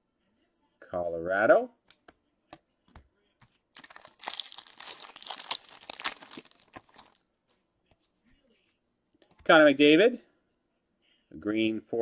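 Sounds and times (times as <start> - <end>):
foil wrapper tearing and crinkling: 3.8 - 7.2.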